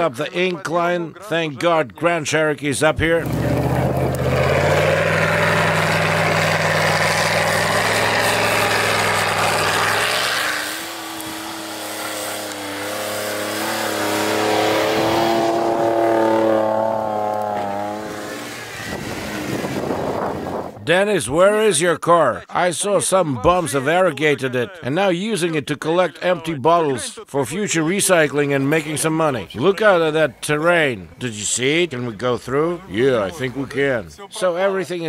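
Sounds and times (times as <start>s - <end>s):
off-road engines revving: 3.0s - 20.8s, 28.1s - 34.1s.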